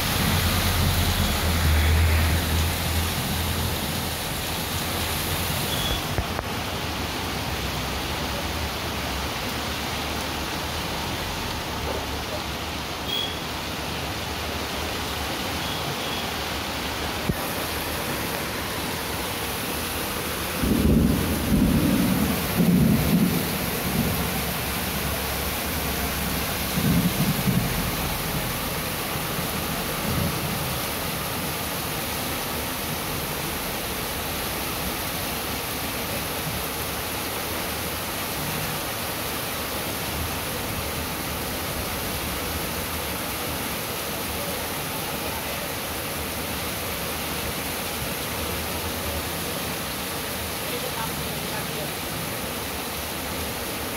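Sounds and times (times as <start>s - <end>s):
heavy rain on pavement: 0.0s - 53.9s.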